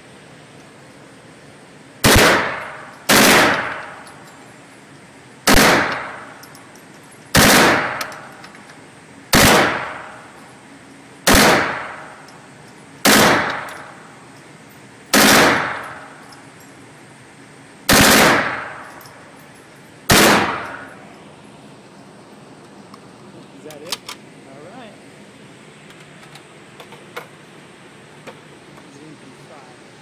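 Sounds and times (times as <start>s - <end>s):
gunshots ringing indoors: 2.0s - 4.0s, 5.5s - 6.3s, 7.3s - 8.3s, 9.3s - 10.2s, 11.3s - 12.2s, 13.0s - 14.0s, 15.1s - 16.1s, 17.9s - 18.8s, 20.1s - 20.9s.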